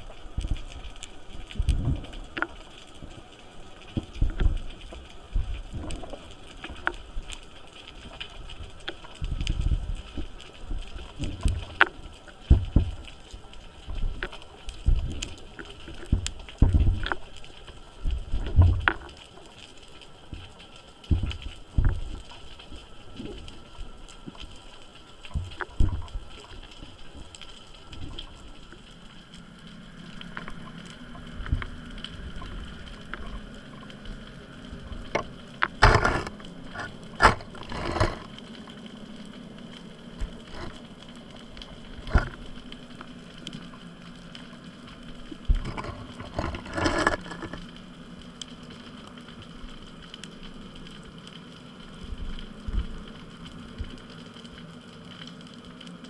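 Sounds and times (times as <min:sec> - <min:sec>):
underwater clicks and knocks: 0:00.3 - 0:19.7, 0:20.3 - 0:24.6, 0:25.2 - 0:28.9, 0:30.2 - 0:38.5, 0:40.2 - 0:43.8, 0:44.6 - 0:47.8.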